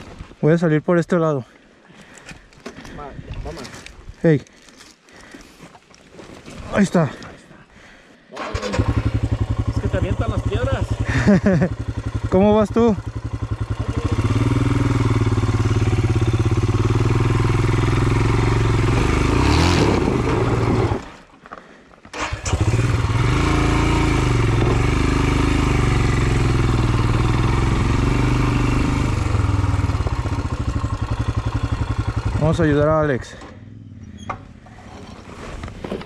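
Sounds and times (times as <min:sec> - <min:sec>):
motorcycle engine climbing: 0:08.4 - 0:36.0.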